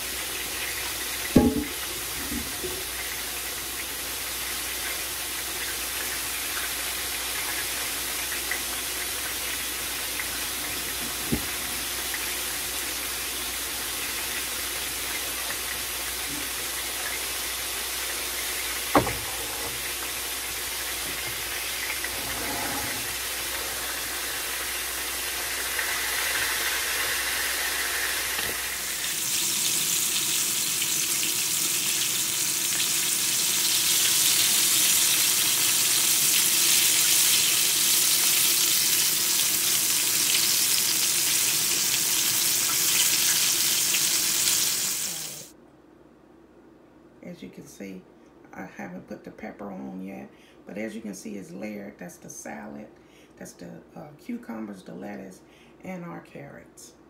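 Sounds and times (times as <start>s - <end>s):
chicken sizzling in oil: 0.0s - 22.1s, 23.1s - 45.5s
pan clanking on stovetop: 1.4s - 2.8s, 19.0s - 19.8s.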